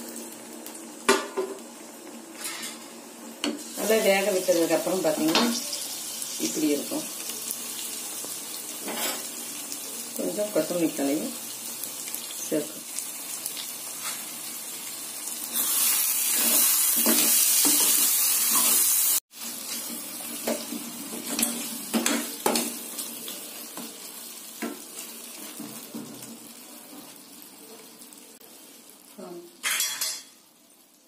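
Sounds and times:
curry sizzling in a pan: 0.0 - 31.0
spatula scraping a pan: 2.3 - 2.9.

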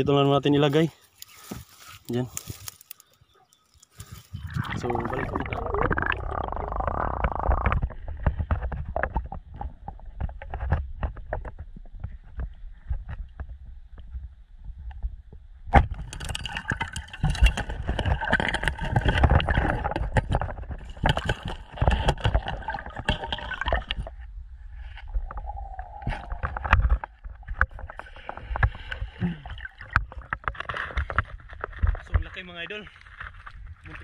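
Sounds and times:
water splashing: 4.2 - 8.2, 16.0 - 24.2, 25.1 - 31.8
underwater rumbling and bubbling: 4.3 - 32.1
sharp crack underwater: 4.5 - 13.5, 14.9 - 32.0.

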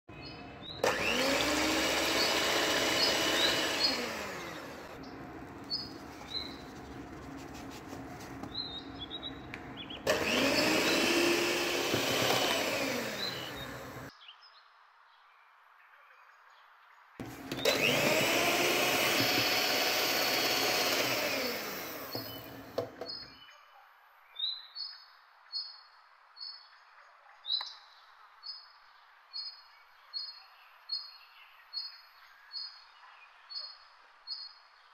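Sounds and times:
birds chirping: 0.1 - 14.6
electric hand mixer whisking: 0.8 - 14.1, 17.2 - 23.1.

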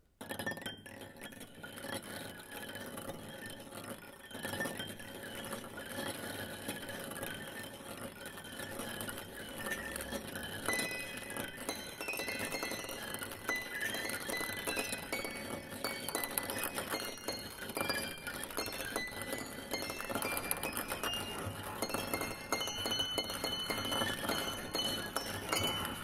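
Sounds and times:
dense clinking and tinkling: 9.3 - 26.0.

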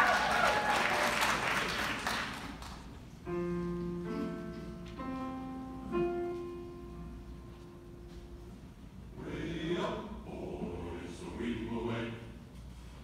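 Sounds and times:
audience applause: 0.0 - 3.0
grand piano chords: 2.2 - 12.5.

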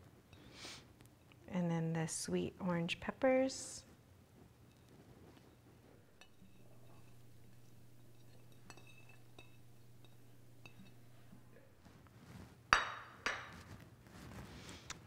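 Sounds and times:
plate clattering on stone counter: 6.2 - 11.4, 12.8 - 13.7
plate clinking against glass bowl: 6.2 - 11.5.

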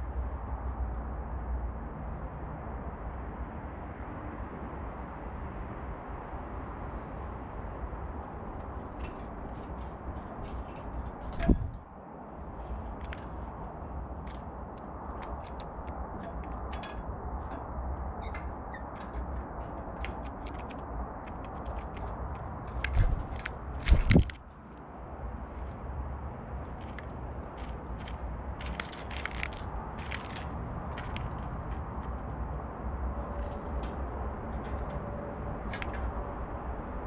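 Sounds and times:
low outdoor rumble: 0.0 - 37.0
birds thumping on railing: 8.6 - 11.9, 12.6 - 24.5.

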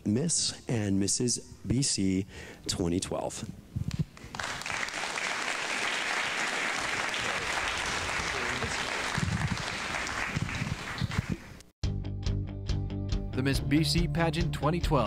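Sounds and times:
audience applauding: 4.2 - 11.5.

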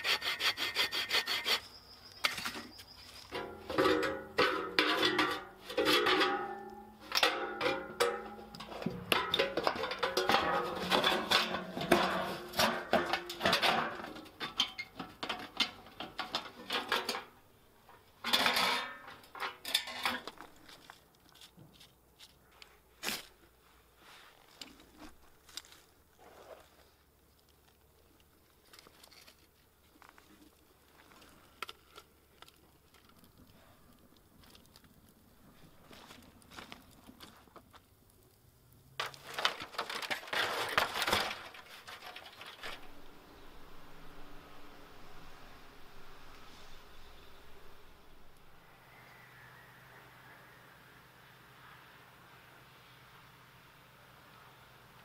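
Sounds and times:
metal sheet clattering on stone: 3.2 - 17.4, 18.2 - 20.6, 39.0 - 43.2.

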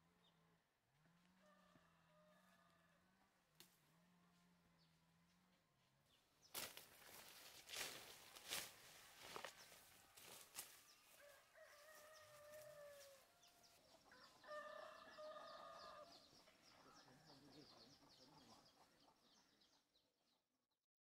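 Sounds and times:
rooster crowing: 1.4 - 3.1, 10.9 - 16.2
footsteps in undergrowth: 5.2 - 14.8.

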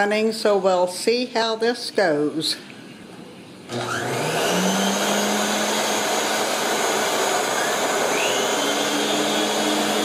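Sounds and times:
vacuum cleaner running: 3.7 - 10.0.

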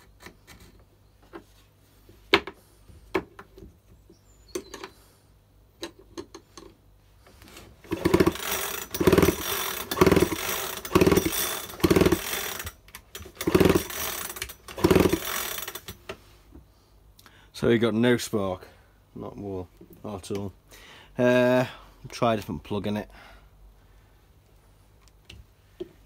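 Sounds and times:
chainsaw recoil starter pulls: 7.8 - 16.0.

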